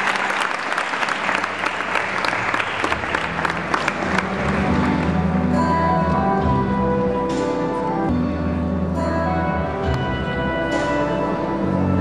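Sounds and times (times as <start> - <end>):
audience clapping: 0.0 - 5.4
instrumental music: 2.8 - 12.0.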